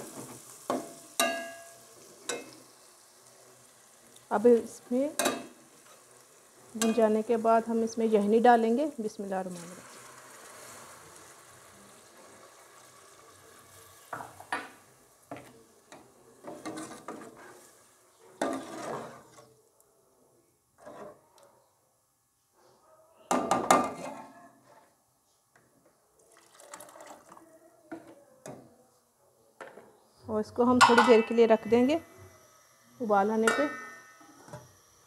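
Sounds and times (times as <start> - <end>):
metal spatula knocking pot: 0.7 - 1.7, 5.2 - 5.5, 30.8 - 31.9, 33.4 - 34.2
stock pouring into pot: 26.2 - 27.4.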